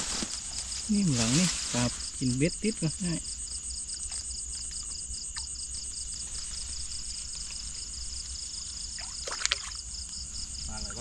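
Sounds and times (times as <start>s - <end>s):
night insects chirping: 0.0s - 11.0s
water sloshing: 8.9s - 9.9s.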